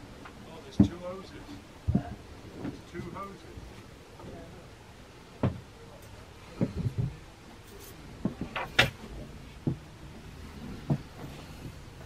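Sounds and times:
light knocks and thumps: 0:00.8 - 0:01.0, 0:01.9 - 0:02.8, 0:05.4 - 0:05.7, 0:06.5 - 0:07.2, 0:08.2 - 0:11.8.

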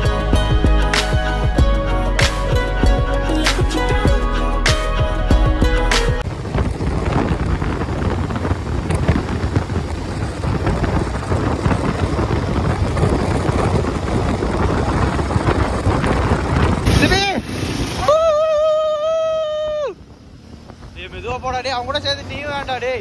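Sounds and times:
wind buffeting microphone: 0:05.3 - 0:23.0
motorcycle running: 0:05.4 - 0:23.0.

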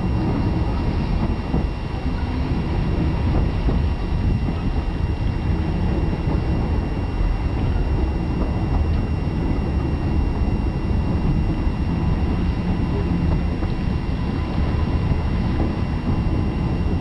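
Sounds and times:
railway carriages rumbling: 0:00.0 - 0:17.0
wind buffeting microphone: 0:00.0 - 0:17.0.

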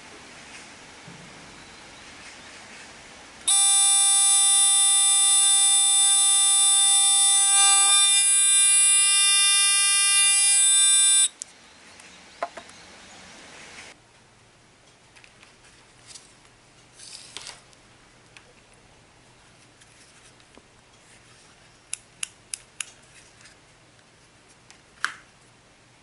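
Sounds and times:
alarm buzzer continuous tone: 0:03.5 - 0:11.3.

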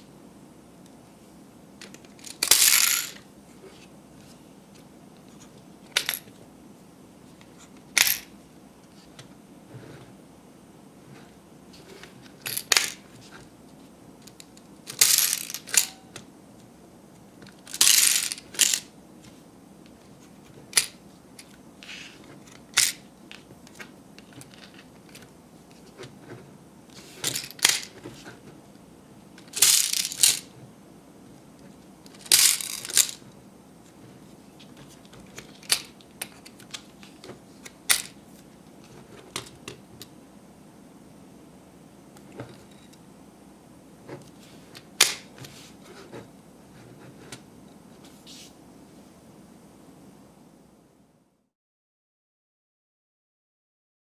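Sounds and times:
mints clattering into plastic trays: 0:01.8 - 0:03.3, 0:05.9 - 0:06.4, 0:07.9 - 0:08.3, 0:12.3 - 0:13.0, 0:14.3 - 0:16.2, 0:17.5 - 0:18.9, 0:20.6 - 0:21.5, 0:22.4 - 0:25.3, 0:27.0 - 0:28.2, 0:29.4 - 0:30.5, 0:32.1 - 0:33.3, 0:34.8 - 0:38.2.

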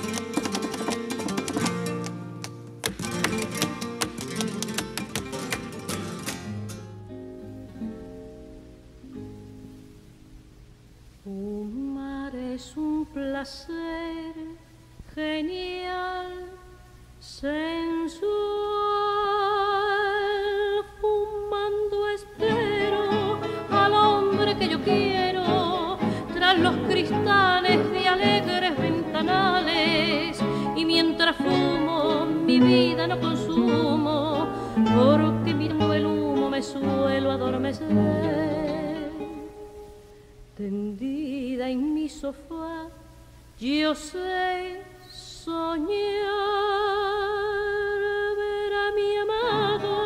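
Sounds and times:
operatic vocal melody with vibrato: 0:17.8 - 0:39.7, 0:45.5 - 0:50.0.

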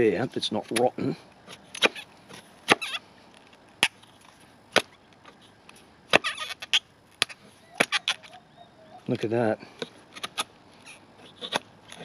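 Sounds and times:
knife chopping into wood: 0:01.5 - 0:03.0, 0:04.7 - 0:04.9, 0:06.1 - 0:08.2.

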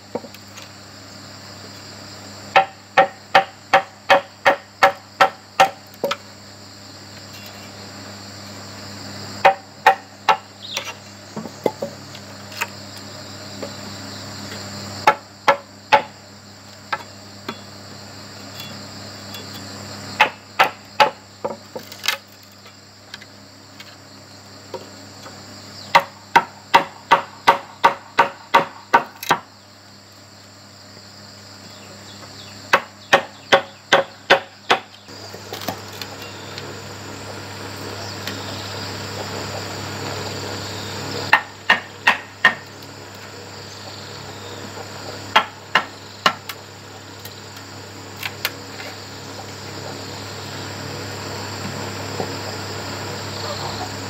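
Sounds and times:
insects chirring: 0:00.0 - 0:54.0
cleaver chopping bamboo: 0:02.5 - 0:06.2, 0:09.4 - 0:12.8, 0:15.0 - 0:16.2, 0:20.2 - 0:22.5, 0:25.9 - 0:29.5, 0:32.7 - 0:36.2, 0:41.3 - 0:42.9, 0:45.3 - 0:46.6.

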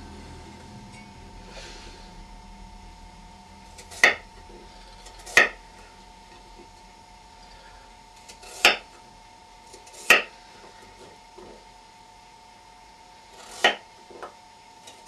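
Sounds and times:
faint steady hum: 0:00.0 - 0:15.0
knife slicing rhubarb: 0:03.7 - 0:04.3, 0:05.0 - 0:05.6, 0:08.2 - 0:08.9, 0:09.7 - 0:10.3, 0:13.4 - 0:13.9.

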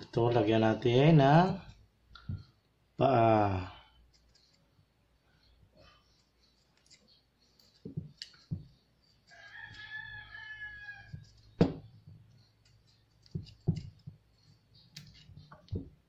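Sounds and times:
rooster crowing: 0:09.3 - 0:11.4.

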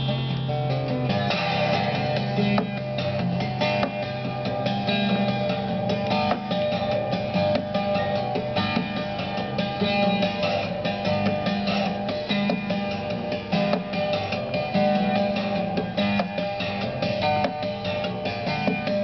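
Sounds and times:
acoustic guitar plucked melody: 0:00.0 - 0:19.0.

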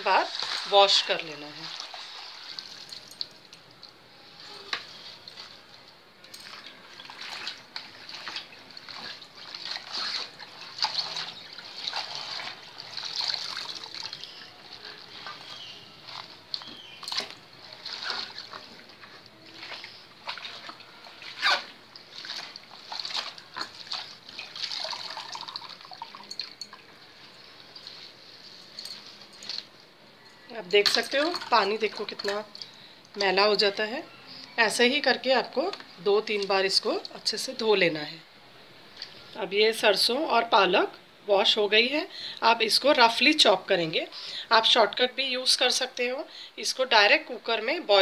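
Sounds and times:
water splashing and dripping: 0:00.1 - 0:04.0, 0:04.8 - 0:27.0, 0:30.8 - 0:33.3.

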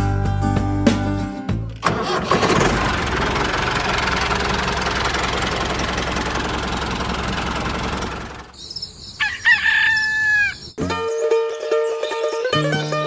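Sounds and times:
tractor engine running: 0:01.7 - 0:09.2.

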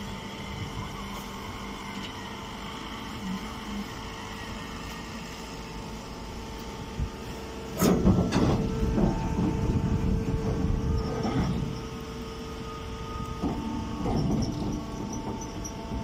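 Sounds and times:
baling machine hum: 0:00.0 - 0:16.0
machine rattling and clattering: 0:13.4 - 0:16.0.

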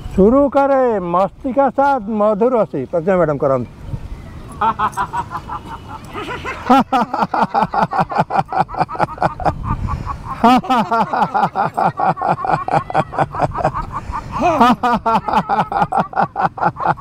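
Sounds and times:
group of people laughing: 0:04.6 - 0:17.0.

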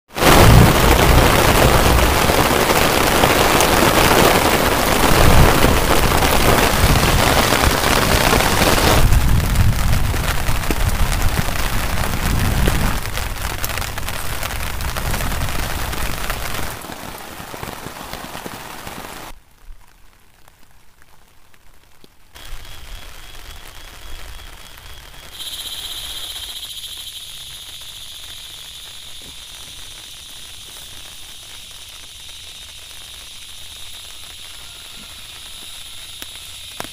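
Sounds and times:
heavy rain on a tarpaulin: 0:00.0 - 0:36.9
high-pitched drone: 0:22.7 - 0:36.9.

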